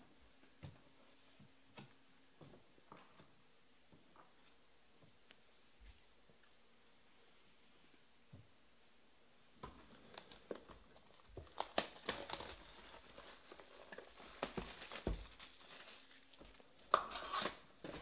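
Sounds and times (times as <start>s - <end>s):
plastic shrink wrap crinkling: 9.8s - 17.6s.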